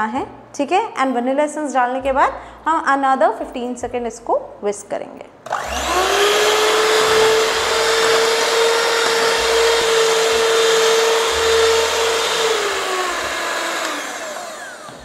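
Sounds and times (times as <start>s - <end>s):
electric hand mixer whining: 5.4s - 15.0s.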